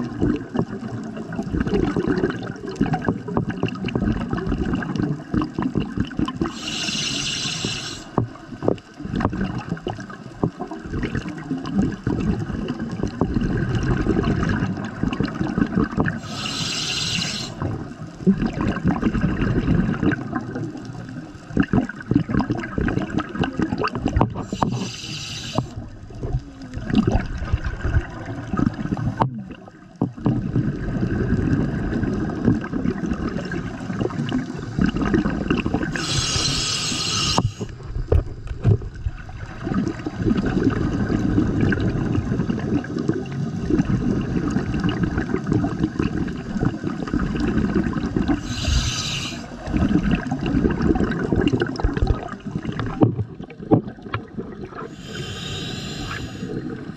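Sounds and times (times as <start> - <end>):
exhaled bubbles gurgling: 0.0 - 56.9
regulator inhalation hiss: 6.5 - 8.2, 16.2 - 17.6, 24.4 - 25.8, 35.9 - 37.7, 48.4 - 49.7, 54.9 - 56.6.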